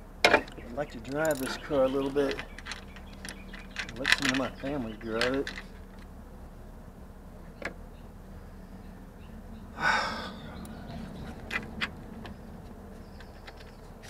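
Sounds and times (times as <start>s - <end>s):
hand tool clicking on metal: 0.5s - 4.6s
sharp loud breath: 9.8s - 10.5s.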